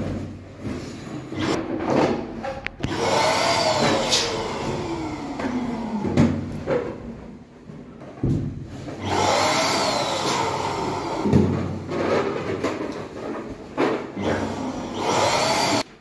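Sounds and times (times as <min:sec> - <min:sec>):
knocks and rustling of handling: 0:05.5 - 0:09.0, 0:11.3 - 0:14.2.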